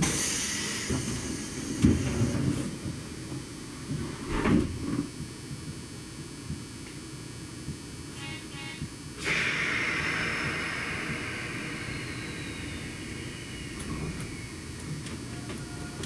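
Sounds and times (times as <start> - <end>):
train wheels rumbling on track: 0.0 - 5.8, 9.2 - 16.0
hissing wheel screech: 9.3 - 16.0.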